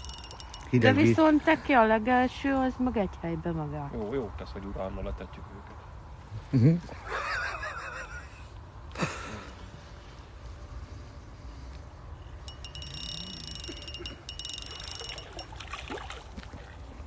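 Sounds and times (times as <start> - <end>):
bite alarm rapid high beeps: 0.0 - 1.0, 12.5 - 15.5.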